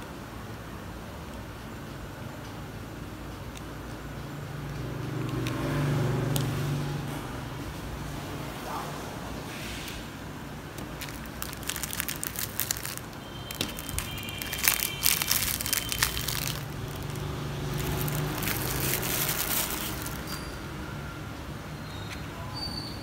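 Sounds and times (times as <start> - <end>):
plastic bag crinkling: 10.7 - 20.6.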